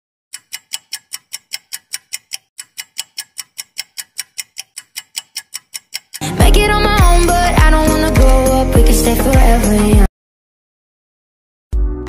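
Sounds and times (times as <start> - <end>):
sharp ticking: 0.3 - 8.6.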